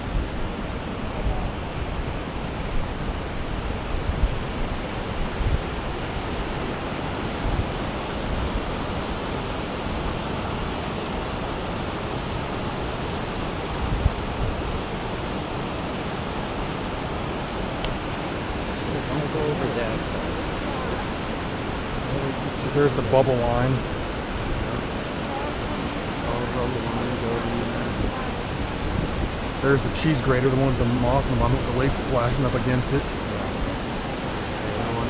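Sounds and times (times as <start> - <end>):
whitewater rapid rushing: 0.0 - 35.0
wind buffeting microphone: 0.0 - 35.0.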